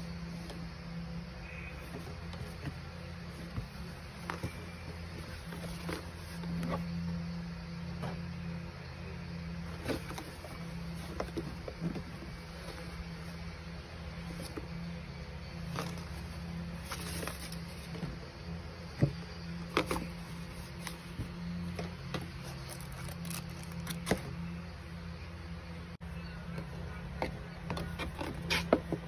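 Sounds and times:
steady low hum: 0:00.0 - 0:29.0
hat and cardboard box rustling: 0:01.4 - 0:08.2, 0:09.6 - 0:24.4.

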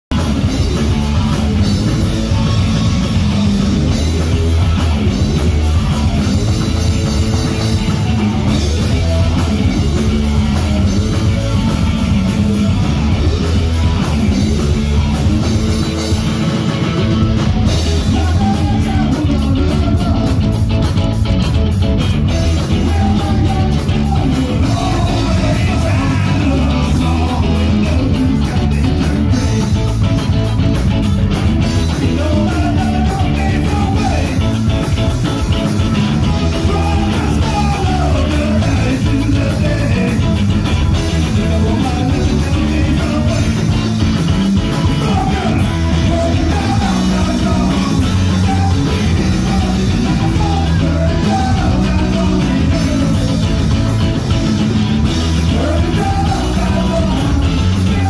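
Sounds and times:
live band playing: 0:00.1 - 0:58.0
person singing: 0:17.0 - 0:20.7, 0:22.4 - 0:30.5, 0:31.8 - 0:35.0, 0:35.8 - 0:54.3, 0:55.2 - 0:58.0.

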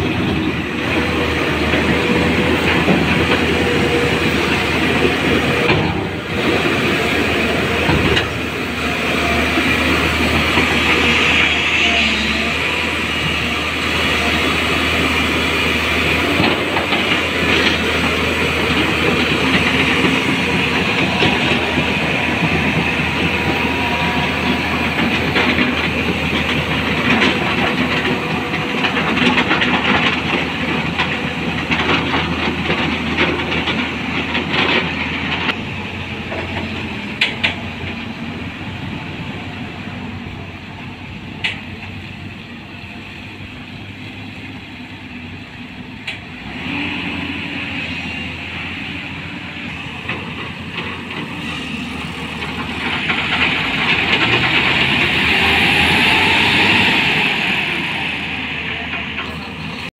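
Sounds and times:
excavator diesel engine: 0:00.0 - 0:59.9.

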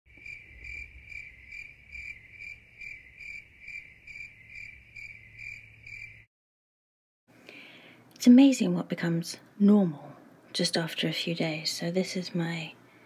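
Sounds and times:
crickets chirping: 0:00.1 - 0:06.3.

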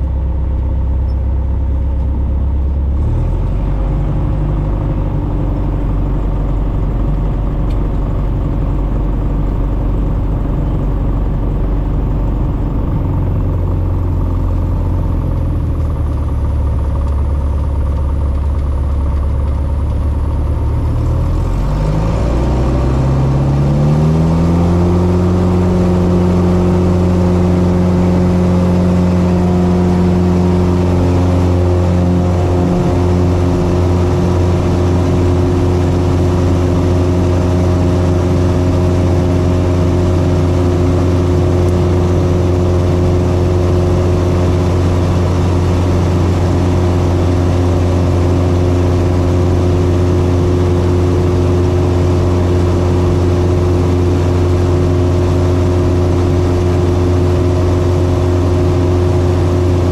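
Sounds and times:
propeller plane engine drone: 0:00.0 - 0:59.9.

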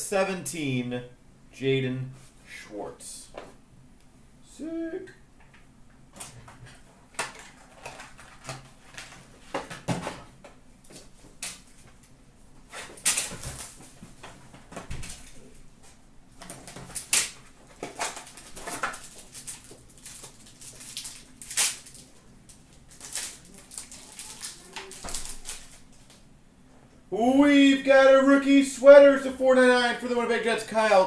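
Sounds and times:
plastic wrap crinkling and tearing: 0:16.4 - 0:26.2.

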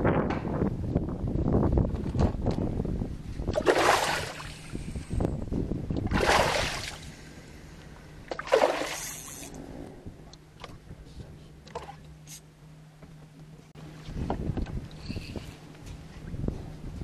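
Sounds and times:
paddle splashing in water: 0:03.6 - 0:04.5, 0:06.1 - 0:07.0, 0:08.3 - 0:09.3.

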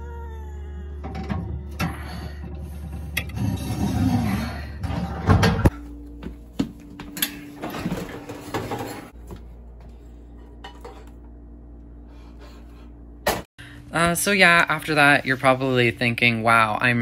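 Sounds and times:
low steady hum: 0:00.0 - 0:17.0
oven door scraping open: 0:01.4 - 0:05.7.

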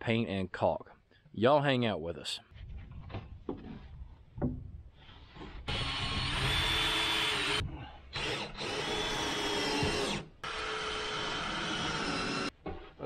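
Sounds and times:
power drill driving screws: 0:05.6 - 0:12.5.

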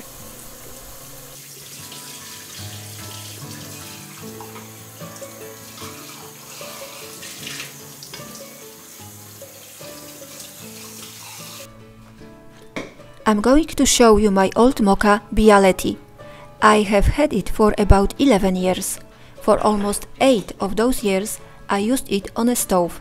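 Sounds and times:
metal parts rinsed in sink: 0:00.0 - 0:11.6
tap water running: 0:00.0 - 0:11.7
soft instrumental music: 0:00.0 - 0:23.0.

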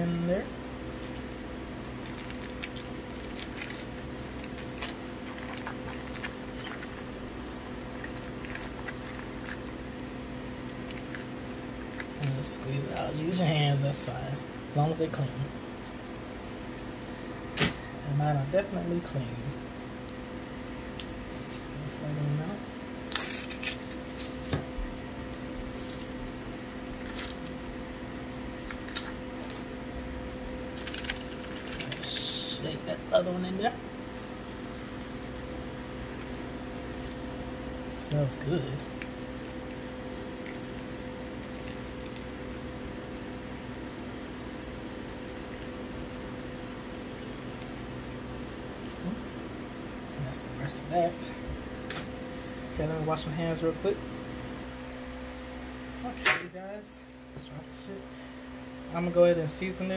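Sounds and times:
cream cheese squishing: 0:00.0 - 0:17.8, 0:18.9 - 0:52.2
steady low hum: 0:00.0 - 0:59.9
foil wrapper crinkling: 0:00.8 - 0:07.2, 0:23.1 - 0:24.6, 0:25.3 - 0:26.2, 0:26.9 - 0:29.8, 0:30.6 - 0:32.6.

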